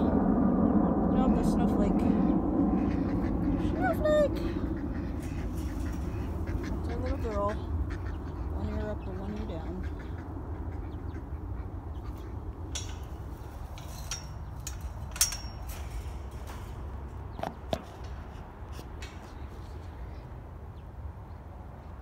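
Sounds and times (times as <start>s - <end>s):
low steady rumble: 0.0s - 22.0s
sharp handling clicks and knocks: 12.5s - 20.0s.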